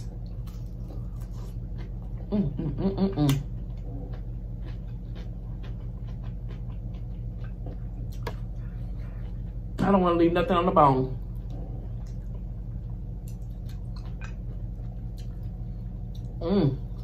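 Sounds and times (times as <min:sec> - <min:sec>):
crunchy chewing: 0:00.0 - 0:02.4, 0:03.3 - 0:09.8, 0:11.2 - 0:17.0
low electrical hum: 0:00.0 - 0:17.0
person mumbling: 0:16.4 - 0:16.8.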